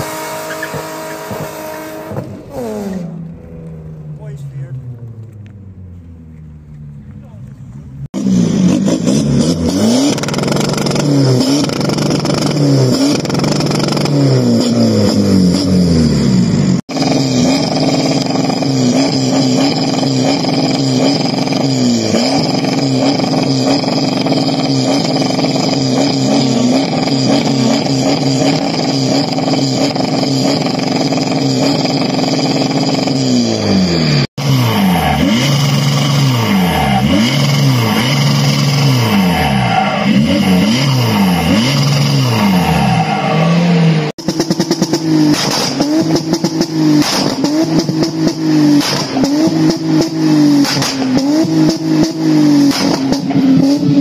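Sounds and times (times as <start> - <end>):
car engines revving: 0.0 - 54.0.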